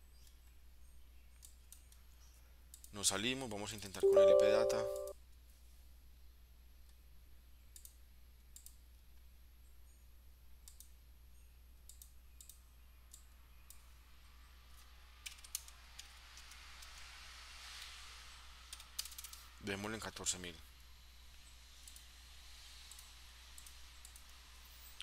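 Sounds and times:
keystrokes: 4.0 - 5.1
computer mouse clicks: 22.9 - 24.3.

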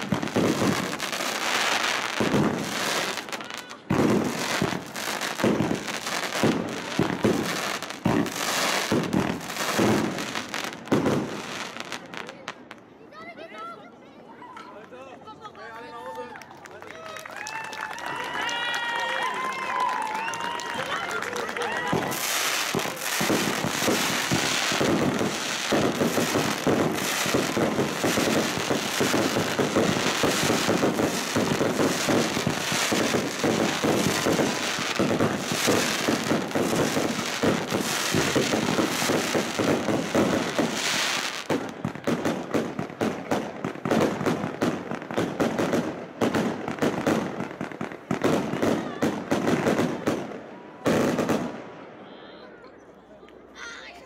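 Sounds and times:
sharp firework bangs: 0.0 - 1.0, 3.9 - 11.4, 21.8 - 47.4
fireworks bursting and crackling: 0.0 - 13.0, 17.3 - 51.9.

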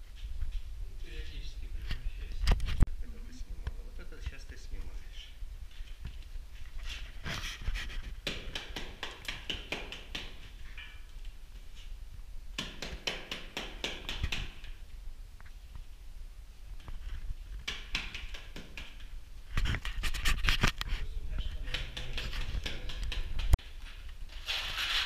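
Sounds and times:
scratchy plaster rubbing strokes: 24.3 - 25.0.

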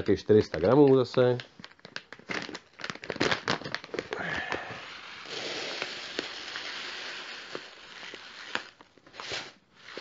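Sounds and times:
plastic bag crinkling: 0.0 - 10.0
pellets pouring into plastic box: 4.2 - 10.0.

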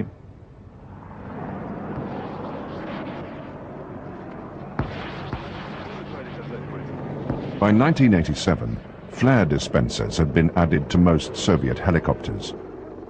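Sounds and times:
aircraft engine rushing: 0.0 - 13.0
sharp cracks: 1.6 - 9.0.

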